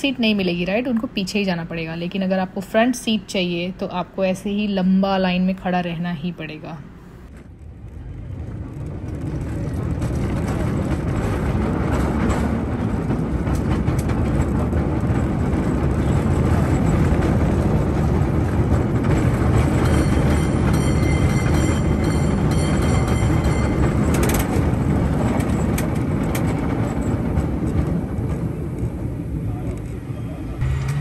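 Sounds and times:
cable car rumbling on rails: 0:07.3 - 0:31.0.

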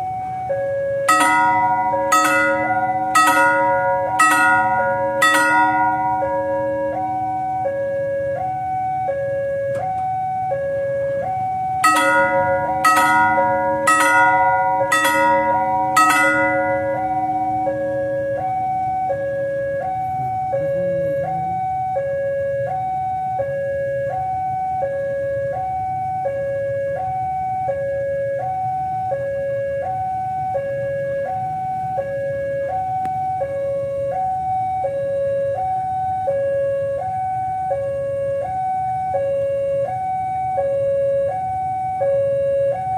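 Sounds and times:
two-tone electronic crossing alarm: 0:00.0 - 0:42.9
ringing bell strikes: 0:01.1 - 0:07.6, 0:11.8 - 0:18.9.

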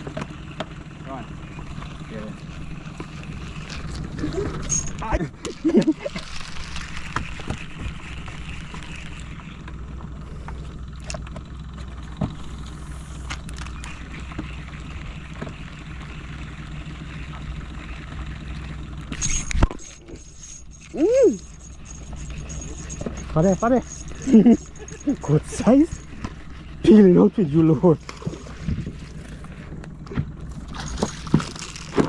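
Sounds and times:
steady low hum: 0:00.0 - 0:32.0
fishing reel clicking: 0:17.0 - 0:26.8.

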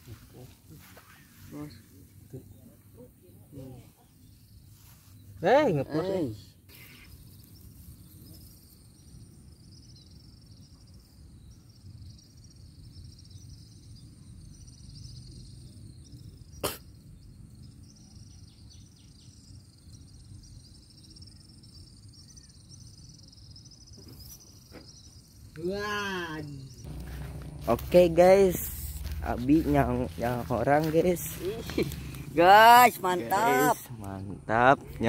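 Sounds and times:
insects chirping in rapid trill: 0:00.0 - 0:35.0
low rumble: 0:26.6 - 0:33.2.

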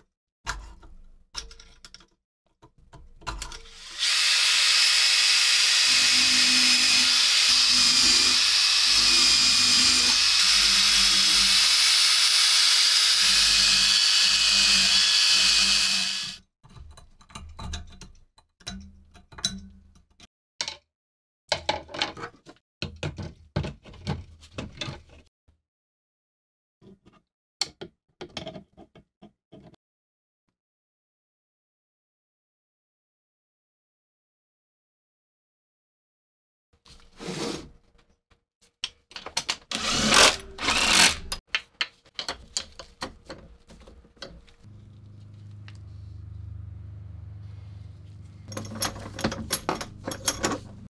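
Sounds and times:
metal parts clicking and knocking: 0:00.6 - 0:03.7, 0:16.7 - 0:20.8, 0:38.8 - 0:44.6, 0:48.4 - 0:50.9.

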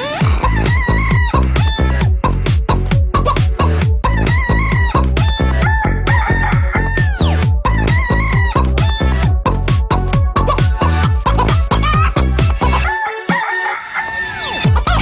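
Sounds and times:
fast kick-drum beat: 0:00.2 - 0:12.8
sampled chicken clucks and squawks: 0:04.2 - 0:08.5, 0:12.8 - 0:15.0.

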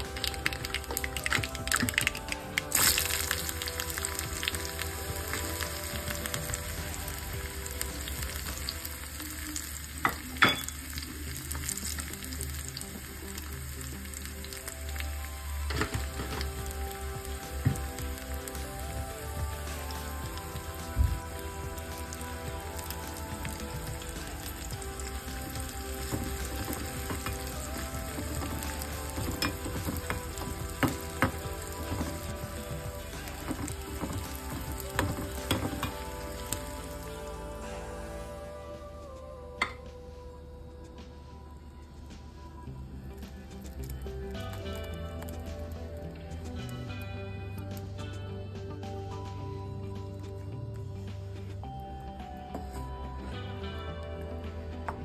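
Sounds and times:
shallots sizzling in hot oil: 0:00.0 - 0:38.2.

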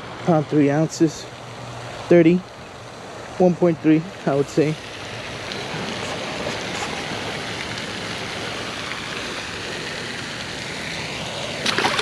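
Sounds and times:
hiss of outdoor noise: 0:00.0 - 0:12.0
fish splashing into water: 0:07.1 - 0:12.0.

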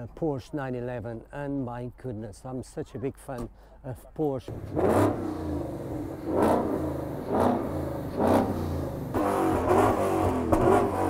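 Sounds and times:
car engine idling and revving: 0:04.4 - 0:11.0.

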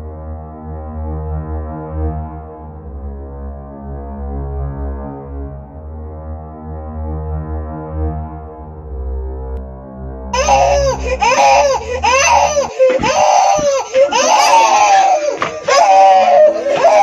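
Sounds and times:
low droning music: 0:00.0 - 0:17.0
person crying loudly: 0:10.4 - 0:17.0.

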